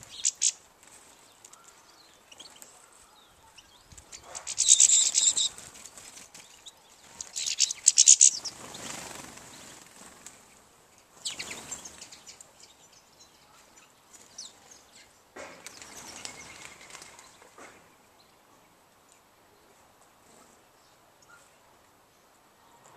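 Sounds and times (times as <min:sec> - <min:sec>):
finches twittering: 0:00.0 - 0:00.6, 0:01.5 - 0:05.6, 0:07.0 - 0:09.7.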